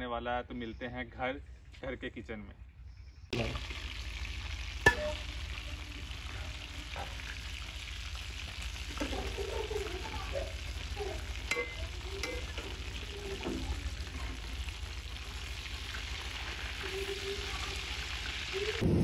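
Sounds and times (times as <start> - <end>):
sizzling hiss: 3.4 - 18.8
skimmer stirring rice in pot: 4.7 - 18.6
spoon clinking against pot: 11.4 - 12.7.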